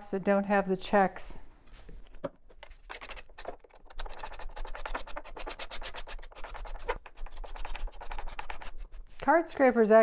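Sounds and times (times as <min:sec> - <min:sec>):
card scraper scraping wood: 0:02.0 - 0:09.0.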